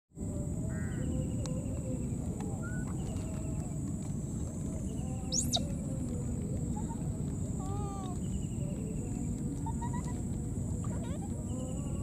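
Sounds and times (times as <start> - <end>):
steady high-pitched whine: 0.2 - 12.0
steady low background noise: 0.2 - 12.0
faint short animal calls and chirps: 5.3 - 5.7.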